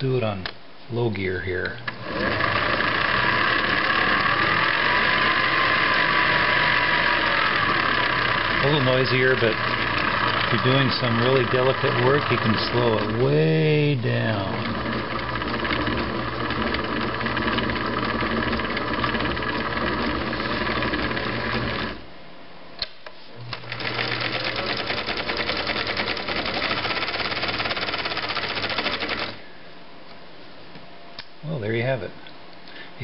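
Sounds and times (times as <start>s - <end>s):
sewing machine stitching: 1.9s - 22.0s, 23.5s - 29.4s.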